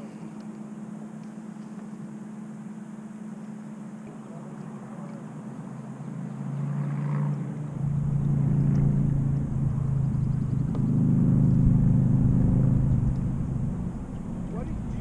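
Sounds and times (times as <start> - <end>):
low motor hum: 0.0 - 15.0
low rumble: 7.7 - 15.0.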